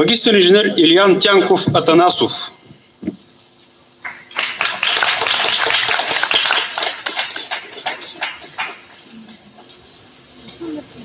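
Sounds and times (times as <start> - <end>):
small crowd applauding: 4.0 - 9.9.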